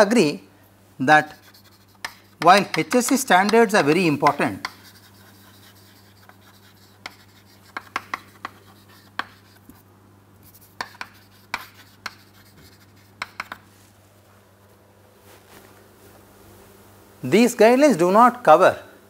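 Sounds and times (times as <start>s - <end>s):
chalk tapping and scraping: 1.2s - 9.8s, 10.4s - 13.9s.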